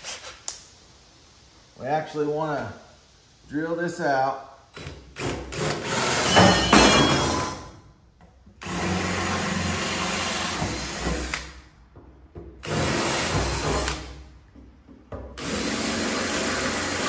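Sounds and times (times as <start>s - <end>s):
cordless drill drilling metal: 5.2s - 6.8s, 8.6s - 11.5s, 12.6s - 14.1s, 15.4s - 17.0s.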